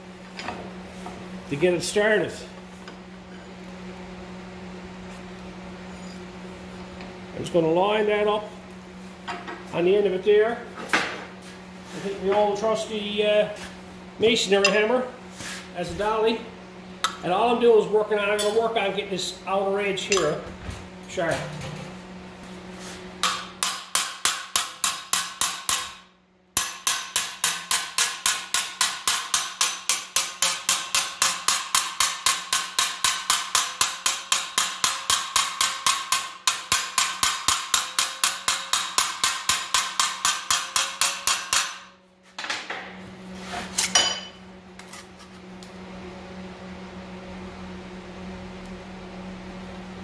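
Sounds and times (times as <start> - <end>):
steady shop hum: 0.0 - 50.0
hammer striking sheet steel: 23.2 - 42.0.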